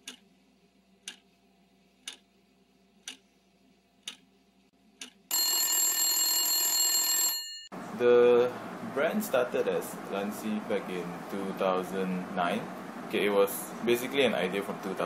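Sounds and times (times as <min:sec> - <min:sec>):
clock ticking: 0:00.0 - 0:00.3, 0:01.0 - 0:01.3, 0:02.0 - 0:02.3, 0:03.0 - 0:03.3, 0:04.0 - 0:04.3, 0:05.0 - 0:05.3
alarm clock bell ringing: 0:05.3 - 0:07.7.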